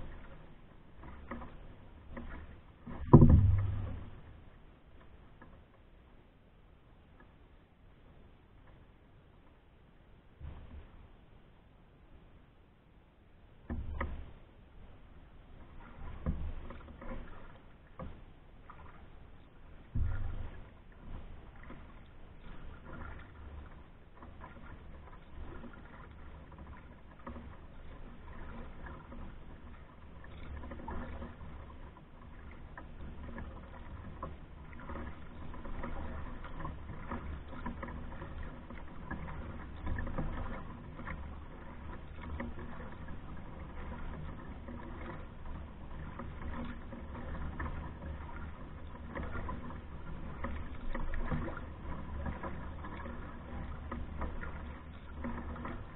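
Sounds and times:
paddle strokes in water: 0.0s - 55.9s.

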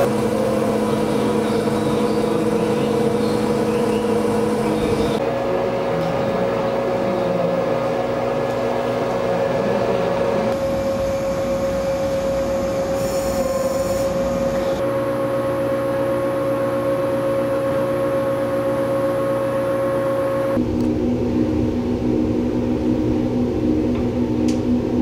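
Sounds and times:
motor-generator hum: 0.0s - 25.0s
brief high whine: 10.5s - 20.7s.

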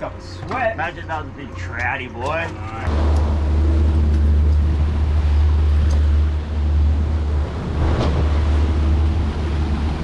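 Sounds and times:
boat motor drone: 2.8s - 10.0s.

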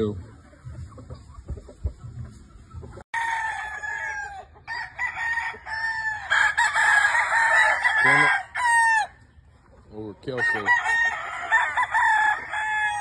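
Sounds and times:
roosters crowing: 2.9s - 9.5s, 10.2s - 13.0s.

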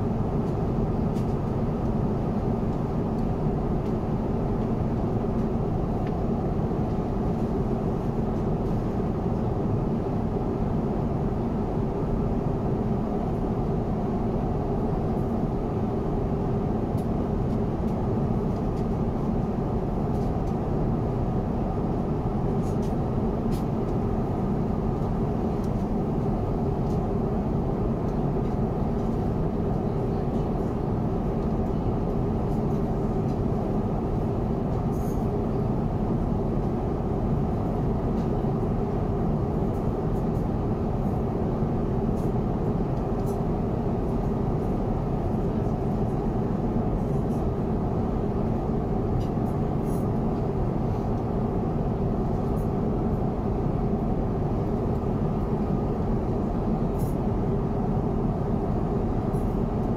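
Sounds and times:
airplane cabin airflow and engine noise: 0.0s - 59.9s.

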